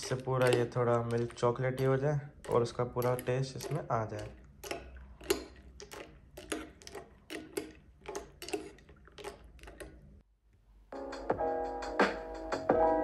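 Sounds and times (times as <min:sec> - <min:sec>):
electronic background music: 0:11.0 - 0:13.0.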